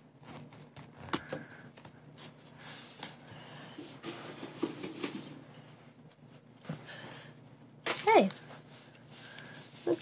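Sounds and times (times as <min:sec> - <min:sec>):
paper rustling: 0:07.9 - 0:10.0.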